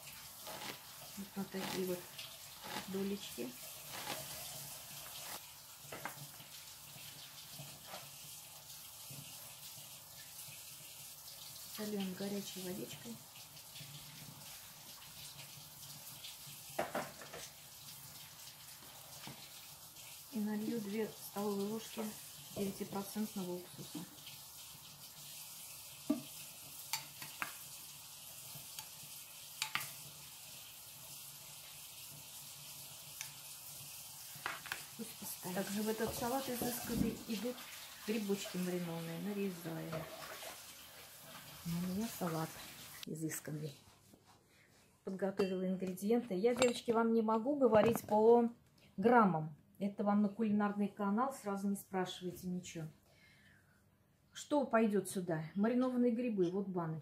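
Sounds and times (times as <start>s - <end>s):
steady watery hiss: 0.0s - 43.1s
metal spoon clinking on glass bowl: 46.6s - 46.9s.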